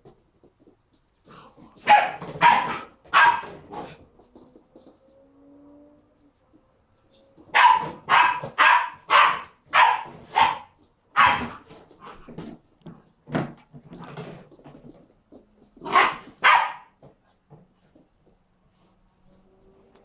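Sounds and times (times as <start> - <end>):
puppy barking: 1.8 - 4.0, 7.5 - 11.7, 15.8 - 17.0.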